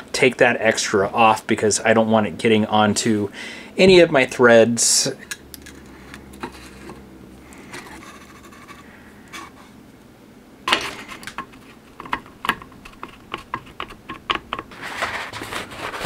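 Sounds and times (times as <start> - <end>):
sharp metallic clicks and taps: 11.2 - 14.7.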